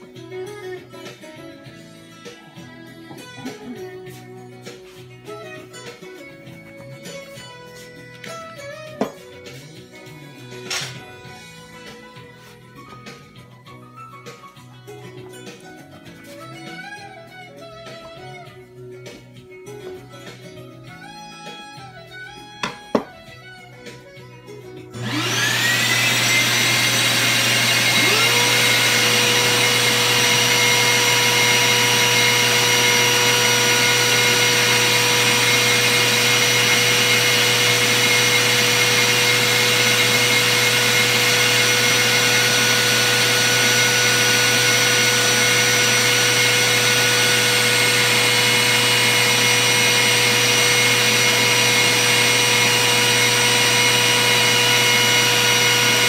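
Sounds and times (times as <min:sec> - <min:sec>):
router and vacuum whining: 0:22.6 - 0:23.1, 0:24.9 - 0:56.0.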